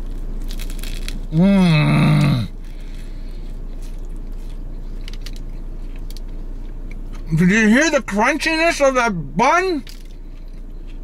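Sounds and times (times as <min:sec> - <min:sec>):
crunching bite into bread roll: 0:00.0 - 0:07.0
person humming mmm with full mouth: 0:01.3 - 0:02.6
quiet chewing: 0:02.5 - 0:07.3, 0:10.0 - 0:11.0.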